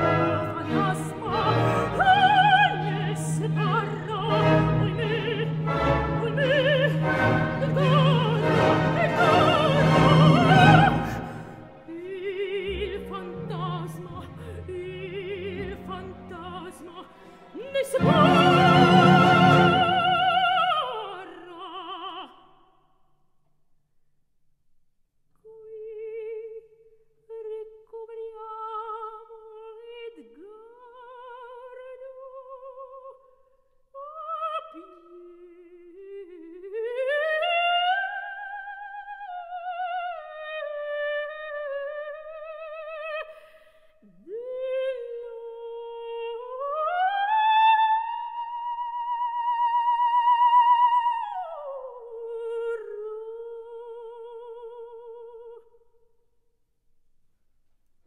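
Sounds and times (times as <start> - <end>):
orchestral music: 0.0 - 21.4
operatic soprano singing: 0.0 - 22.7, 25.4 - 33.3, 34.0 - 55.8.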